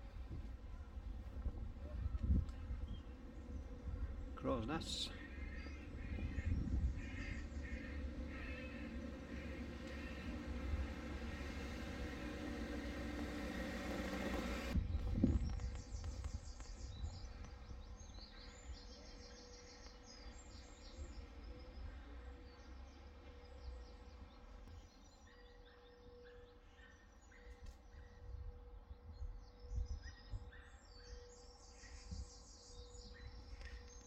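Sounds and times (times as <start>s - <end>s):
wind rumble on microphone: 0.0s - 13.8s, 14.4s - 18.8s, 28.2s - 31.1s
birds chirping: 0.0s - 34.0s
crows calling: 3.8s - 13.4s.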